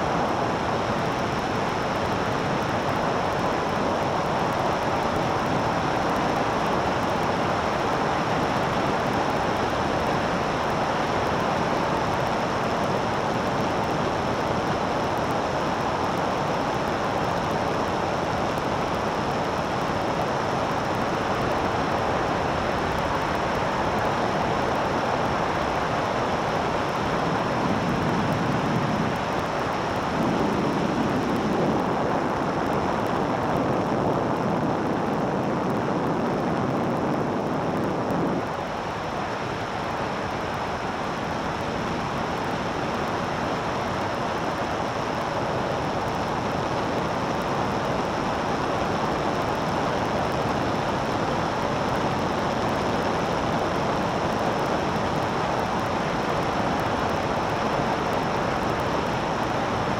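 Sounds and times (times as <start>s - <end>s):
aircraft engine noise: 0.0s - 59.9s.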